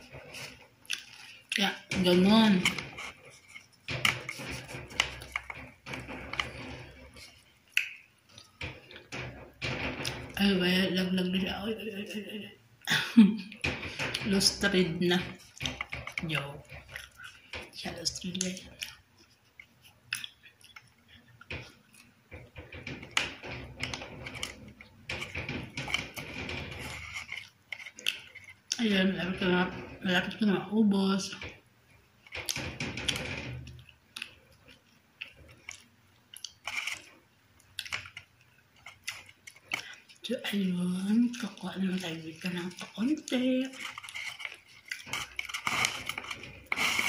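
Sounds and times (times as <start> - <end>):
person chewing: 0.0 - 1.6, 27.0 - 28.8, 34.1 - 40.2, 43.9 - 47.0
person chewing and smacking: 0.0 - 1.6, 2.9 - 9.1, 15.4 - 17.7, 18.4 - 23.2, 26.9 - 28.8, 32.2 - 40.2, 43.8 - 47.0
paper wrapper crinkling: 41.9 - 47.0.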